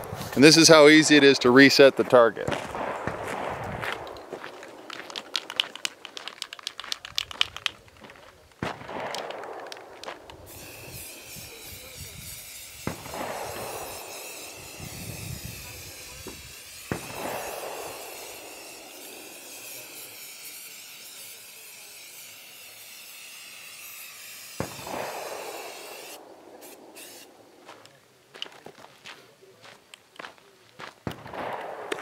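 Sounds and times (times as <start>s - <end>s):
sharp cracks: 0.0s - 28.5s, 31.0s - 32.0s
spray paint can hissing: 4.4s - 7.7s, 9.2s - 27.4s.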